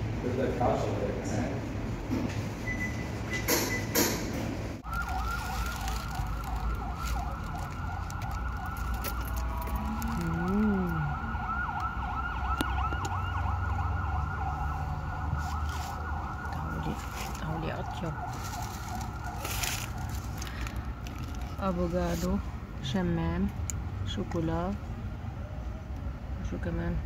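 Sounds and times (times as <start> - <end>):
low rumble of traffic: 0.0 - 27.0
electronic siren yelping: 4.8 - 19.5.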